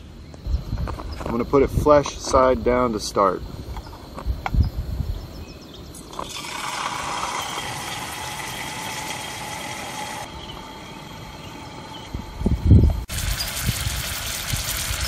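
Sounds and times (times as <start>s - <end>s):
fish fillet sizzling in oil: 13.1s - 15.0s.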